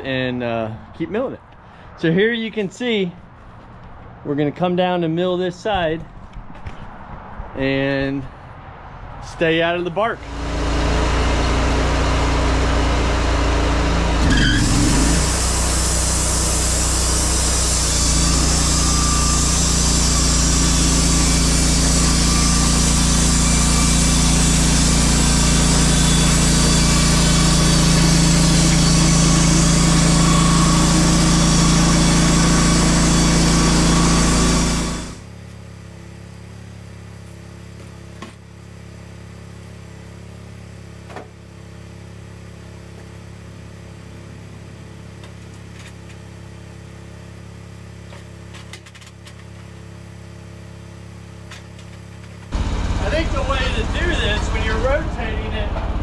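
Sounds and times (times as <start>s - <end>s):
sawmill engine running: 9.8s - 35.4s, 52.5s - 56.0s
engine idling: 52.5s - 56.0s.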